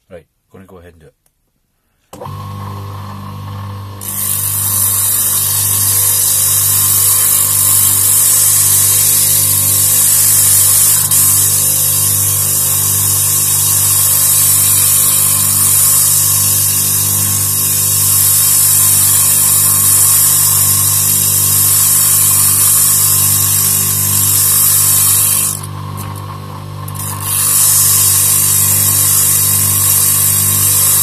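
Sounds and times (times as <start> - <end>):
lathe motor running: 2.2 - 31.0
sandpaper hissing on cork: 27.2 - 31.0.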